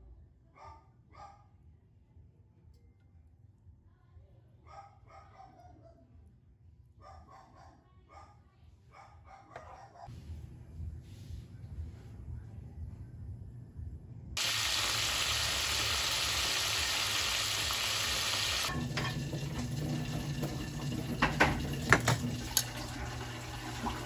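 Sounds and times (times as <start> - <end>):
chicken sizzling in hot oil: 14.4 - 24.0.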